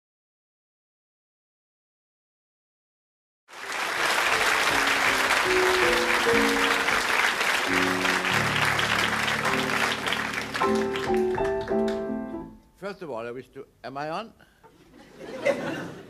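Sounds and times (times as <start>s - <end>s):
audience applause: 3.5s - 12.1s
orchestra playing: 3.6s - 12.7s.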